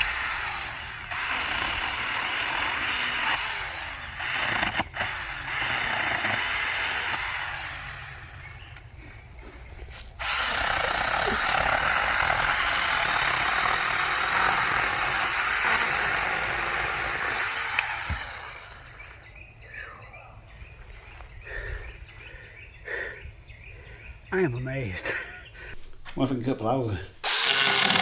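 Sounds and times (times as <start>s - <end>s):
mini chainsaw cutting wood: 0.0s - 8.8s, 10.2s - 19.2s, 27.2s - 28.0s.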